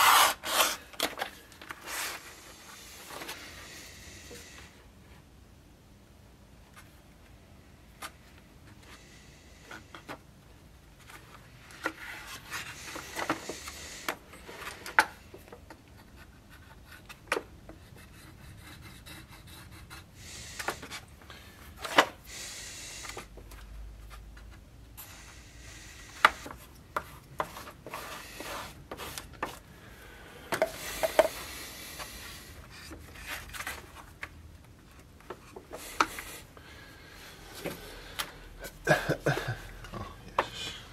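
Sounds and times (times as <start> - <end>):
wood scraping on abrasive sheet: 0.0 - 0.9, 1.7 - 4.6, 27.4 - 29.6.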